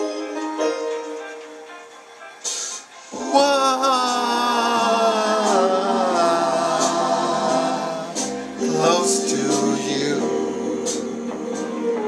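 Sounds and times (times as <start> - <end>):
man singing wordless note: 3.2 - 11.0.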